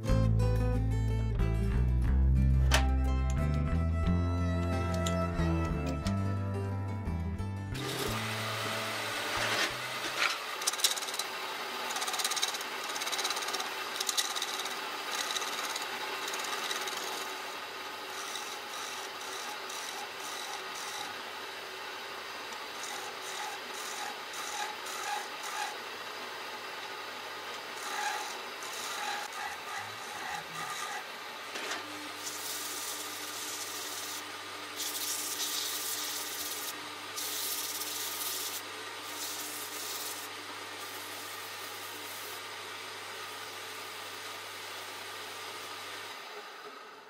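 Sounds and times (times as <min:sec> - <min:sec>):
sanding wood: 0:07.8 - 0:21.3, 0:22.6 - 0:25.9, 0:27.6 - 0:31.2, 0:32.1 - 0:42.5.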